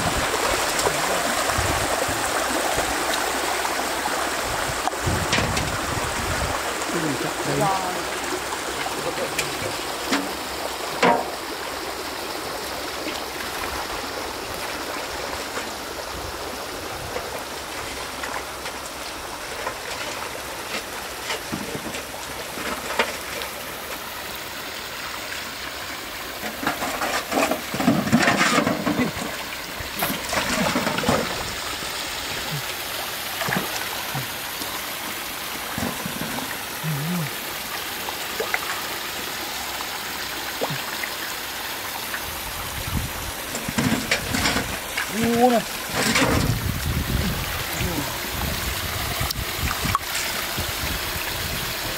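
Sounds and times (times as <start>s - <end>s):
small waterfall: 0.0s - 51.9s
stream trickling over rocks: 0.0s - 51.9s
splashing in water: 26.3s - 51.7s.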